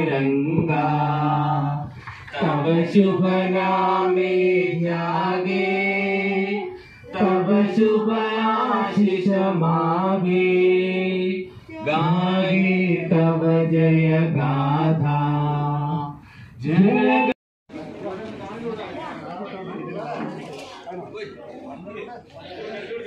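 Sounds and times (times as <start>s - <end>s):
man singing unaccompanied: 0.0s - 17.0s
singer breathing: 1.8s - 2.3s, 6.7s - 7.1s, 11.4s - 11.8s, 16.2s - 16.6s.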